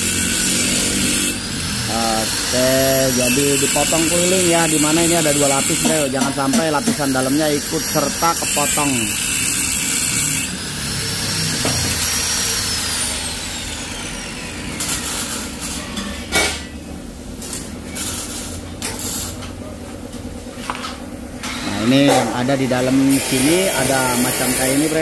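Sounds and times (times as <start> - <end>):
angle grinder cutting steel: 0.0 - 16.8, 21.4 - 25.0
grinder whine spinning down: 8.2 - 16.0.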